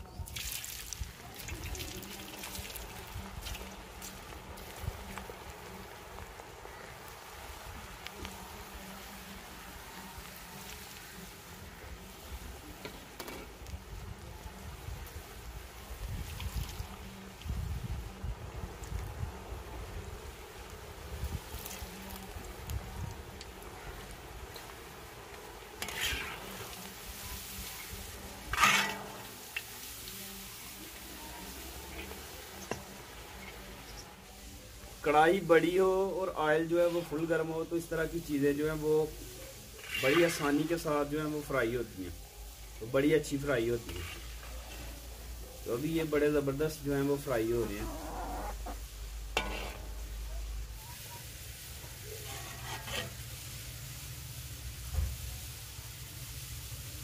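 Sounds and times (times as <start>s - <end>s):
chips sizzling in hot oil: 0.0s - 57.0s
skimmer swishing through oil: 23.6s - 33.7s, 39.2s - 40.9s, 43.8s - 45.6s.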